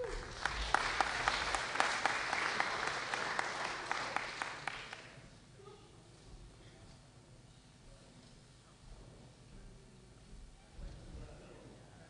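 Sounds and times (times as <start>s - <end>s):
audience applauding: 0.0s - 5.2s.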